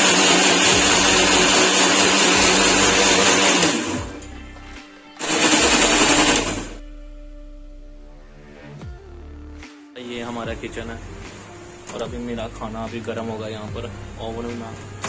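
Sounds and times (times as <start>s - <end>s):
mixer grinder running: 0.0s - 4.3s, 5.2s - 6.8s.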